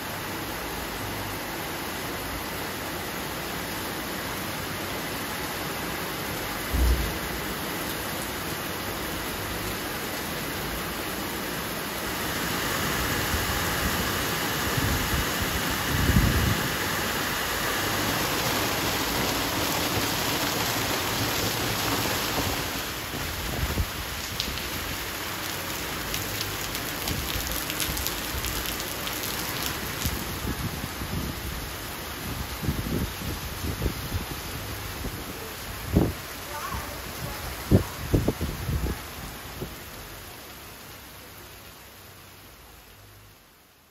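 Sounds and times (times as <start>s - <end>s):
heavy rain on paving: 0.0s - 43.9s
low thump: 6.7s - 7.3s.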